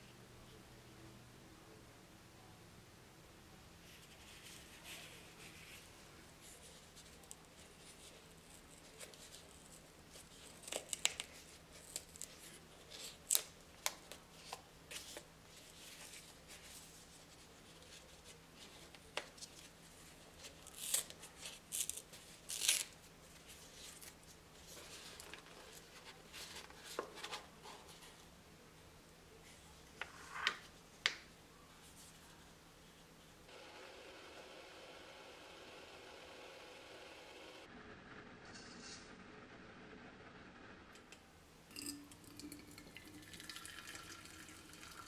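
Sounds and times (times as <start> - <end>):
tape being peeled and torn: 7.0 - 15.3, 20.4 - 24.3.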